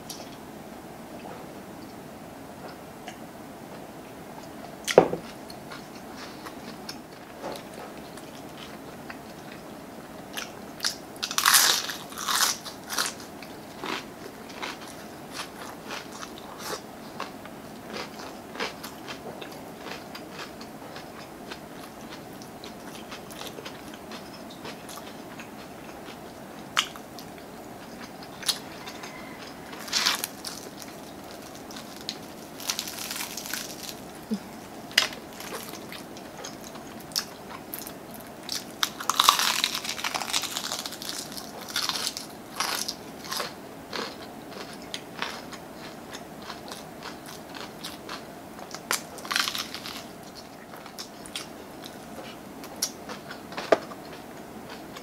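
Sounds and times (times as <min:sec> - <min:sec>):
crunchy chewing of fried chicken: 0:04.4 - 0:55.0.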